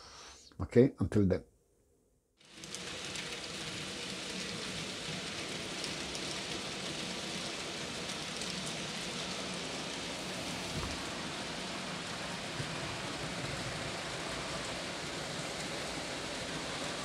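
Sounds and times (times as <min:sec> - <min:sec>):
model train wheels hissing on rail: 0:00.0 - 0:00.5, 0:02.4 - 0:17.0
low motor hum: 0:10.2 - 0:14.8.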